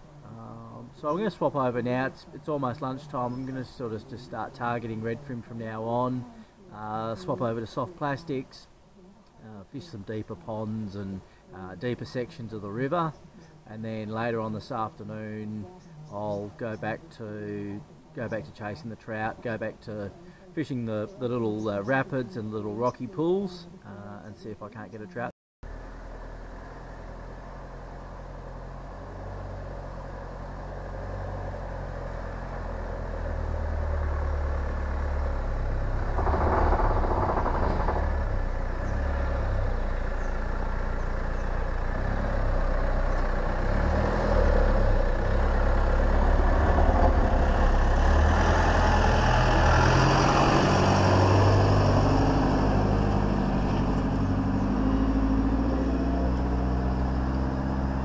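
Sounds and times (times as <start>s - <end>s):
vehicle engine running: 25.6s - 58.0s.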